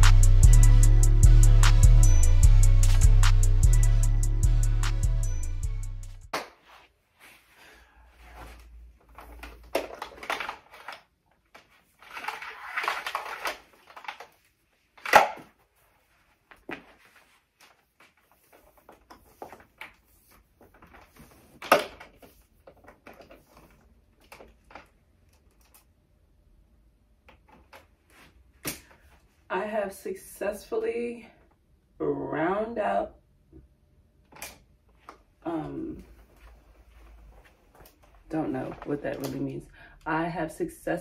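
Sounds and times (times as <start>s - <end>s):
rustling and clatter of objects: 8.2s - 25.9s.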